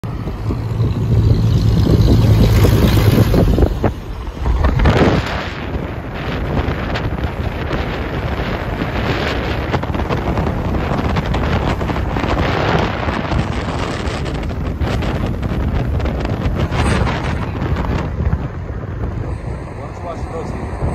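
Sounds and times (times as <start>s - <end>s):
road noise: 0.0s - 20.9s
wind rushing over microphone: 0.0s - 20.9s.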